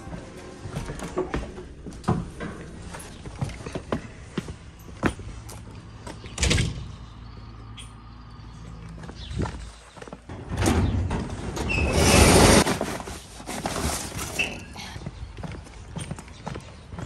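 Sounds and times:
footsteps: 0:00.0 - 0:06.3.

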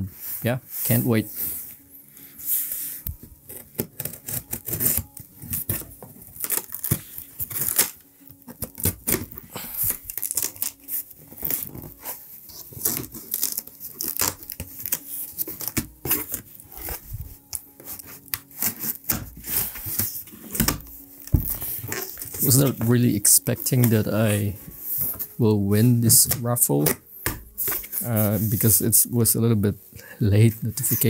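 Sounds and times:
packing tape ripping: 0:03.4 - 0:25.4, 0:26.0 - 0:28.8
blade slitting tape: 0:03.5 - 0:05.8, 0:06.4 - 0:08.0, 0:08.6 - 0:11.9, 0:12.7 - 0:16.9
cardboard flaps scraping: 0:08.8 - 0:25.3.

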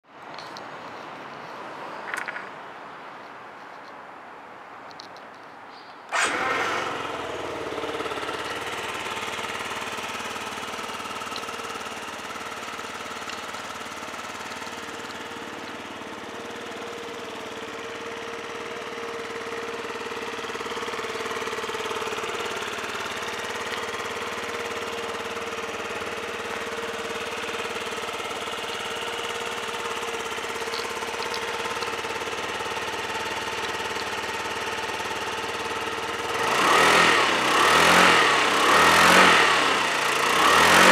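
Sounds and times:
scooter engine idling: 0:06.1 - 0:40.9.

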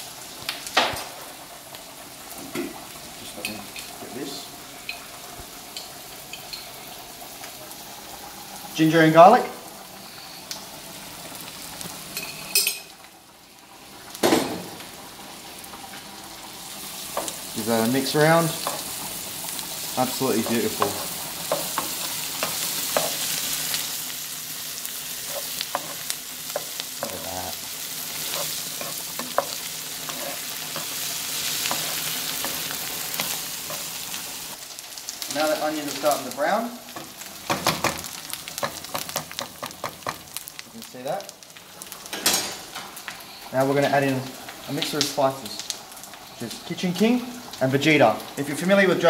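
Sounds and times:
onions sizzling in a pan: 0:00.0 - 0:49.0
metal spoon clinking: 0:12.2 - 0:12.9
spoon scraping against pan: 0:28.1 - 0:34.0.

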